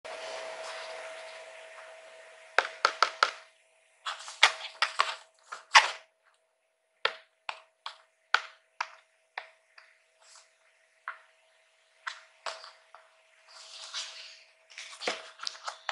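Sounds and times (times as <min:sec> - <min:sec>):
faint steady hum: 0:00.1 - 0:15.9.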